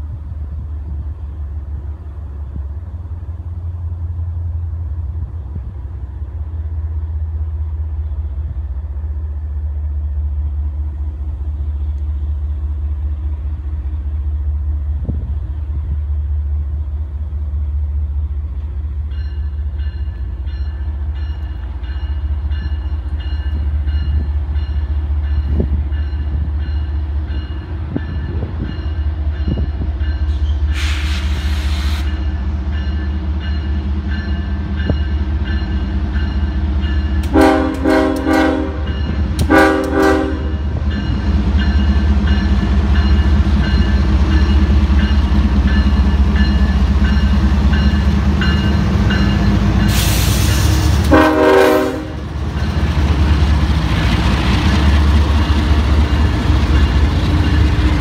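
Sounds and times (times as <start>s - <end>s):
diesel locomotive rumbling: 0.0s - 58.0s
train air horn blasts: 30.4s - 32.1s, 37.2s - 40.7s, 49.9s - 52.2s.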